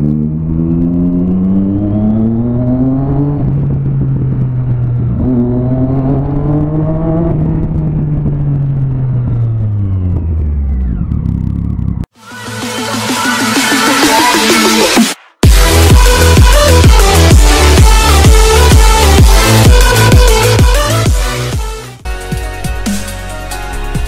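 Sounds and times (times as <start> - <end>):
motorcycle engine revving: 0.0 - 12.2.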